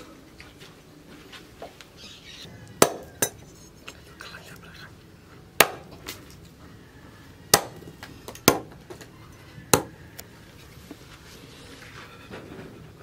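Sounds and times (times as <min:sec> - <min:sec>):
cleaver chopping on wooden block: 0:02.8 - 0:03.4, 0:05.6 - 0:06.0, 0:07.5 - 0:08.8, 0:09.7 - 0:09.9.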